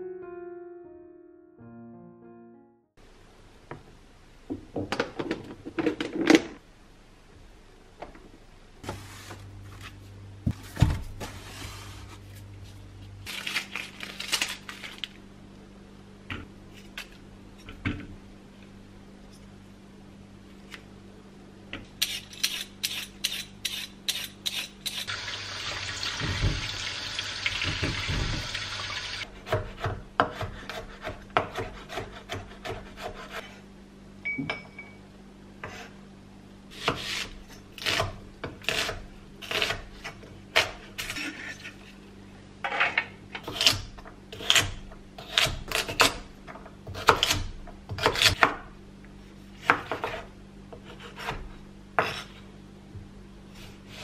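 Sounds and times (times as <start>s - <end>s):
knife chopping on cutting board: 29.4s - 33.5s, 46.9s - 48.6s, 49.6s - 52.4s.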